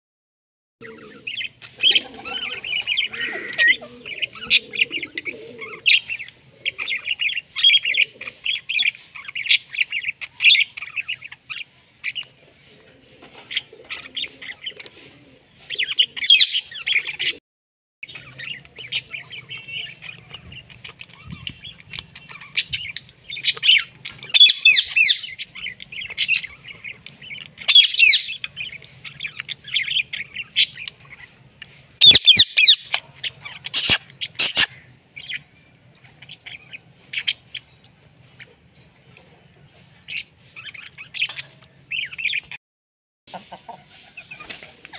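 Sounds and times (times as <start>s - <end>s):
parakeets chirping: 0.8s - 12.4s, 13.2s - 17.4s, 18.0s - 42.6s
parakeet squawks: 32.0s - 34.8s.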